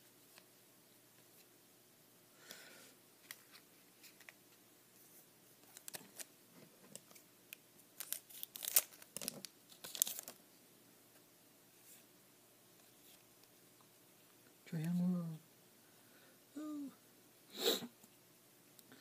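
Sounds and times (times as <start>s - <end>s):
card pack wrapper tearing and crinkling: 5.6s - 6.3s, 8.0s - 10.4s.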